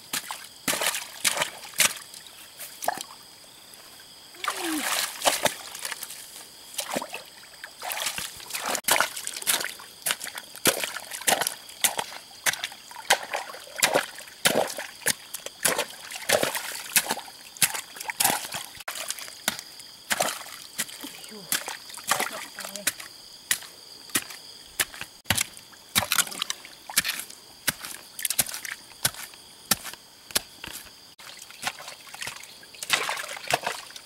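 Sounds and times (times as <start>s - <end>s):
pole jabbing wet earth: 0.1s - 2.1s, 7.8s - 30.9s
muddy water splashing: 0.1s - 3.2s, 4.4s - 34.0s.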